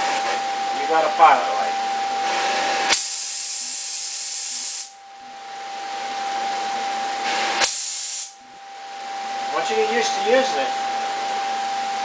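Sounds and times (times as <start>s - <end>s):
torch flame hissing: 2.2s - 5.0s, 7.2s - 8.4s.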